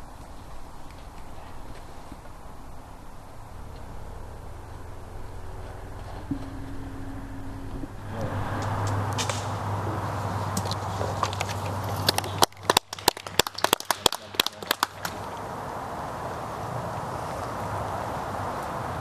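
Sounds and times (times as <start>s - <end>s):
sharp crackling clicks: 8.6s - 9.6s.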